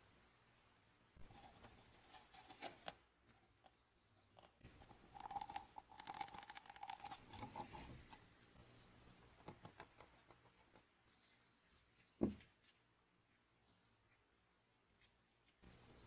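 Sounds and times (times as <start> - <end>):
plastic cup clicking and creaking: 4.4 - 7.6.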